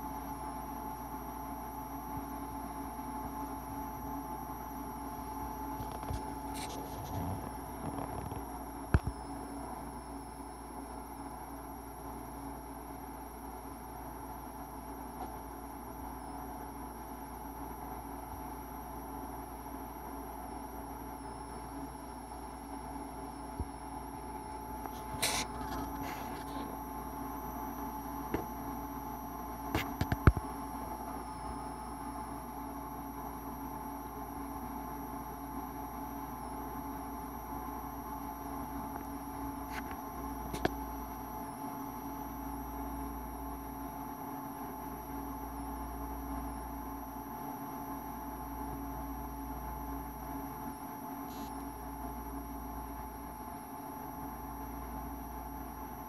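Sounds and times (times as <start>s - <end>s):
electrical hum: 0.0s - 56.0s.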